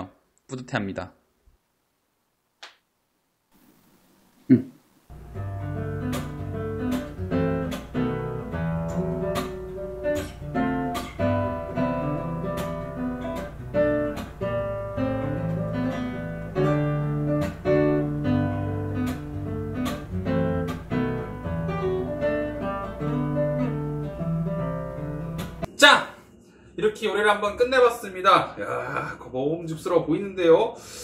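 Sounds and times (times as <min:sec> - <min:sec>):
acoustic guitar music: 0:05.1 - 0:26.6.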